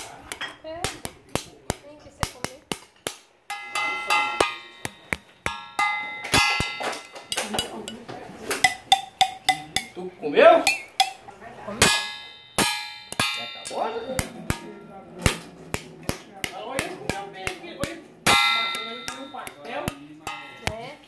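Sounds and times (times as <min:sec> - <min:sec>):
wooden skewer tapping metal cup: 0:00.0 - 0:10.0, 0:10.6 - 0:21.0
person speaking: 0:06.1 - 0:11.9, 0:13.2 - 0:21.0.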